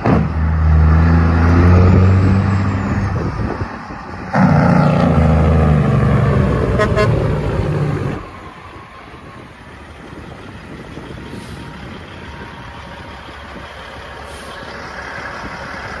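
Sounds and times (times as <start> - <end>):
truck diesel engine running: 3.1 - 16.0.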